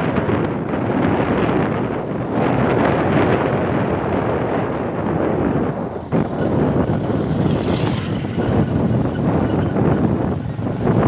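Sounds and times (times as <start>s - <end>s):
wind buffeting microphone: 0.0s - 11.0s
motorcycle engine running: 5.8s - 11.0s.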